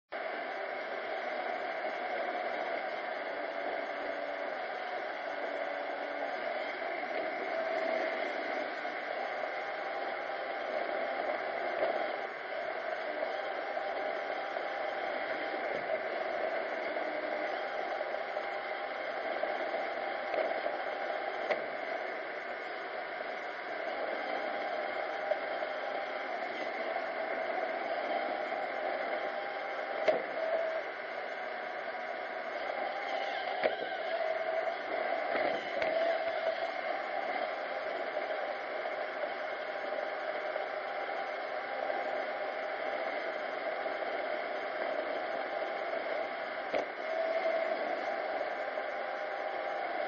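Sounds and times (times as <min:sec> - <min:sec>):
robot vacuum humming: 0:32.7 - 0:36.8.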